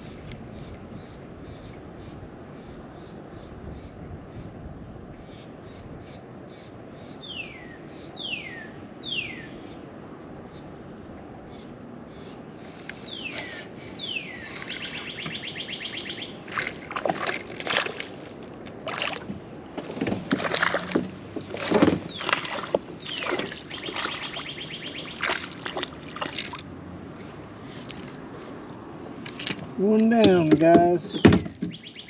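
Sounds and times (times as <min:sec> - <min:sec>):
songbird whistles and trill: 0:14.0 - 0:16.4, 0:23.0 - 0:25.2, 0:31.2 - 0:32.0
paddle strokes splashing: 0:14.5 - 0:31.7
water sloshing around kayak: 0:14.5 - 0:31.9.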